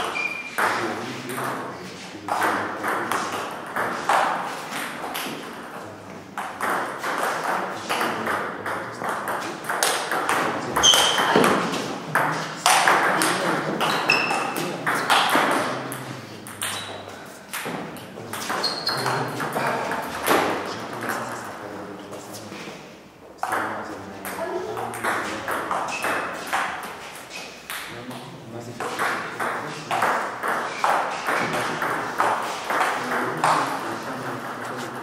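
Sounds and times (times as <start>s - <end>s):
high squeaks: 0.0s - 0.6s, 10.8s - 11.4s, 13.9s - 14.5s, 18.5s - 19.8s
ball bouncing on table: 0.0s - 1.7s, 2.3s - 5.8s, 6.4s - 21.2s, 23.4s - 27.0s, 27.6s - 28.2s, 28.8s - 33.8s.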